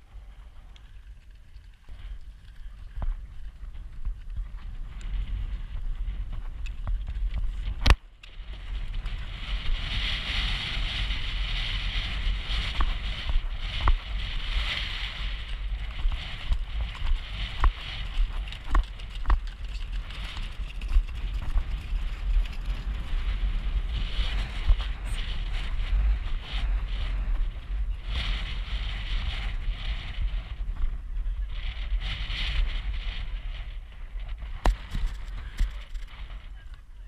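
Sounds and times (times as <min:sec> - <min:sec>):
wind buffeting microphone: 0:00.0 - 0:37.0
hooves and tack knocking: 0:12.0 - 0:26.1, 0:34.3 - 0:36.8
sharp crack: 0:34.6 - 0:36.3.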